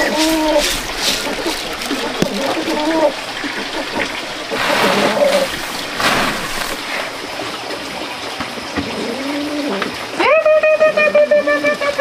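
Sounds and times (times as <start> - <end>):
grain rustling on a tray: 0.0 - 7.4.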